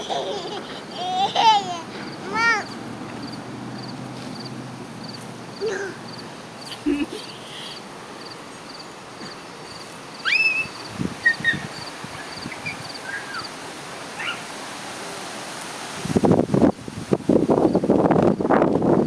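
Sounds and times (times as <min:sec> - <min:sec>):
outdoor background noise: 0:00.0 - 0:19.0
cricket chirping: 0:02.6 - 0:13.6.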